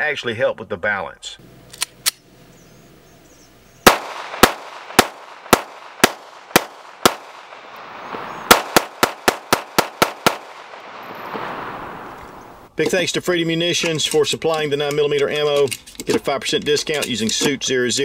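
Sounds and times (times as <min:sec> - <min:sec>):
pistol gunshots with echo: 0:03.8 - 0:12.6.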